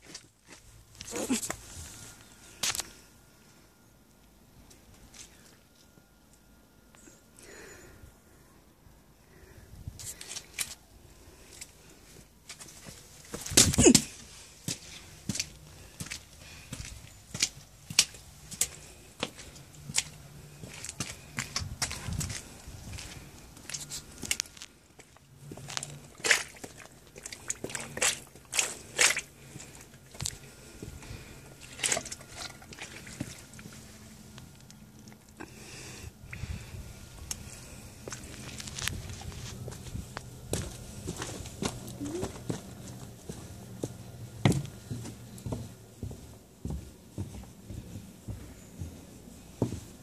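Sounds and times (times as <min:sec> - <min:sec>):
boots stepping on wet concrete: 0:00.0 - 0:01.7, 0:12.4 - 0:34.0, 0:37.2 - 0:47.4
footsteps: 0:37.3 - 0:50.0.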